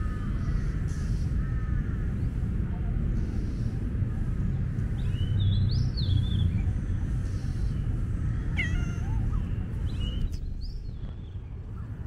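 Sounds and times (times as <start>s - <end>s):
steady low rumble: 0.0s - 12.0s
cat meowing: 8.5s - 9.5s.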